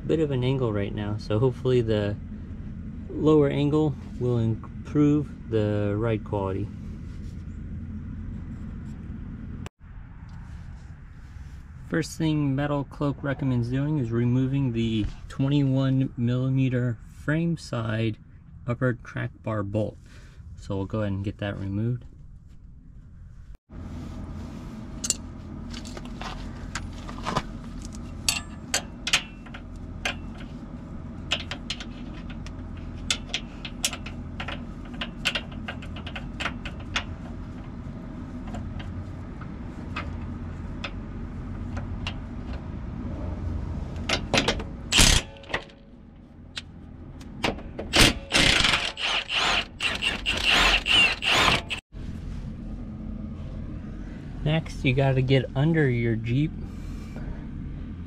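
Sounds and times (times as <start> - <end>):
wrench clicking and scraping: 47.9 - 51.8.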